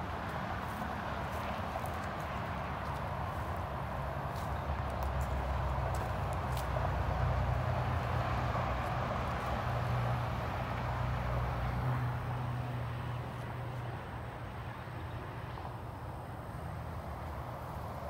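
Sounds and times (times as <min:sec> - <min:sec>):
highway traffic rush of tyres: 0:00.0 - 0:18.0
low traffic hum: 0:00.0 - 0:18.0.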